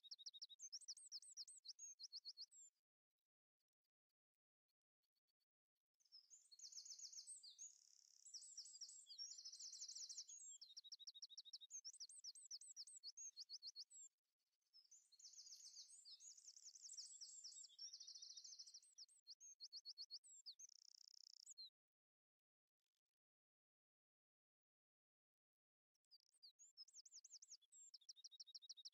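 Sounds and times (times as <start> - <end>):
songbird trills and chirps: 0.0 - 2.6, 6.1 - 14.1, 14.8 - 21.8, 26.2 - 28.9.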